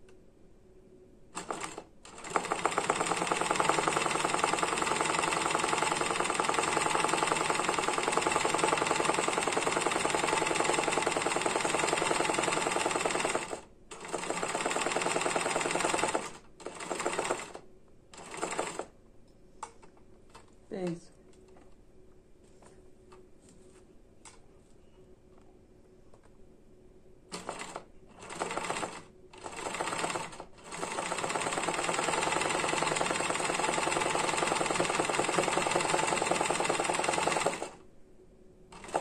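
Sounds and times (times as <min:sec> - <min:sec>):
sewing machine stitching: 0:01.4 - 0:17.6, 0:18.2 - 0:18.9, 0:27.3 - 0:37.8, 0:38.7 - 0:39.0.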